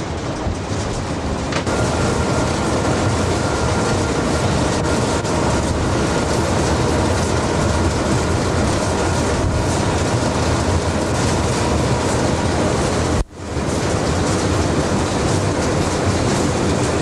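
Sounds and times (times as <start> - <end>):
train rumbling on rails: 0.0 - 17.0.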